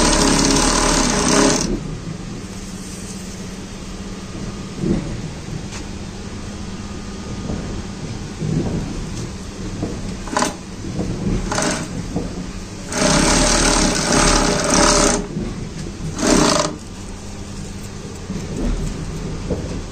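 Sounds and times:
sewing machine stitching: 0:00.0 - 0:01.8, 0:10.2 - 0:10.6, 0:11.4 - 0:12.0, 0:12.8 - 0:15.3, 0:16.1 - 0:16.8
low machine hum: 0:00.0 - 0:19.9.

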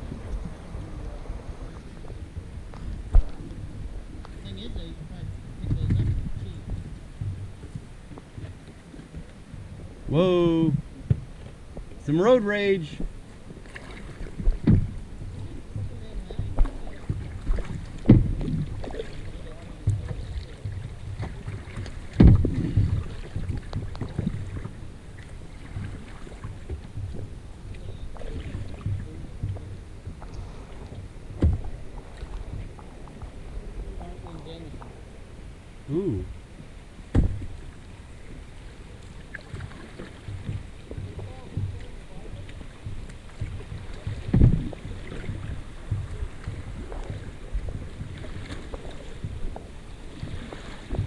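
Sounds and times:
water splashing against a hull: 0:00.0 - 0:51.0
wind rumbling on microphone: 0:00.0 - 0:51.0
loud thump: 0:18.1 - 0:18.4, 0:22.2 - 0:22.9, 0:37.1 - 0:37.5.

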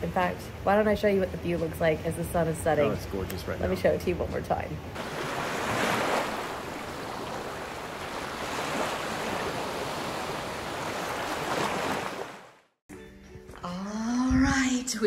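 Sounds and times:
sea waves washing onto shore: 0:05.0 - 0:12.6.

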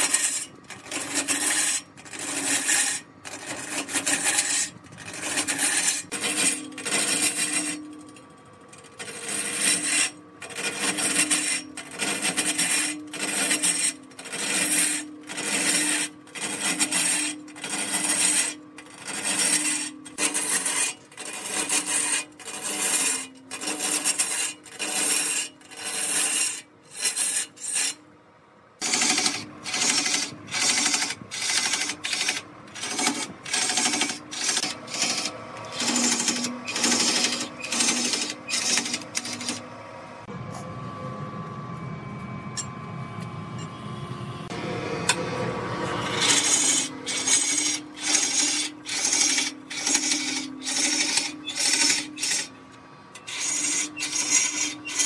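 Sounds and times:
lathe humming: 0:28.8 - 0:55.0
sanding pad rasping on wood: 0:46.1 - 0:52.5.

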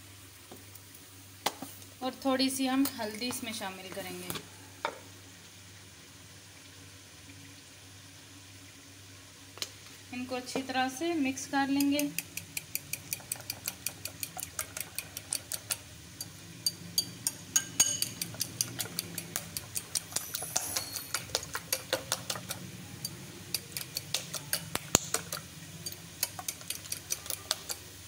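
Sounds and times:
fork whisking eggs in a bowl: 0:11.7 - 0:27.9.

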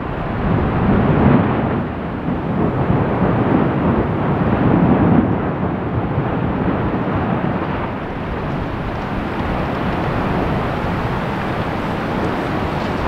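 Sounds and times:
volcano erupting rush: 0:00.0 - 0:13.0.

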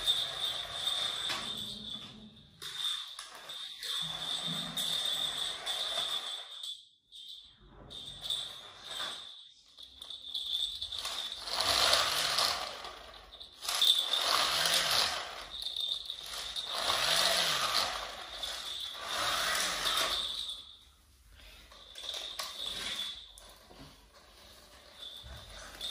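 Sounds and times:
motorised toy whirring: 0:11.0 - 0:13.0, 0:13.6 - 0:15.5, 0:16.2 - 0:20.2.

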